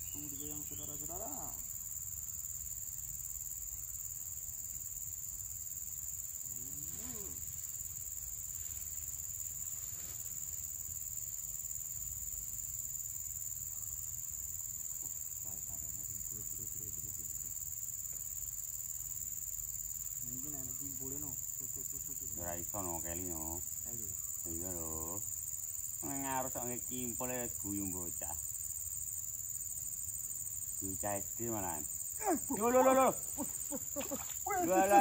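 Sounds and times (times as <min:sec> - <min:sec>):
insects droning: 0:00.0 - 0:35.0
faint voices: 0:34.4 - 0:35.0.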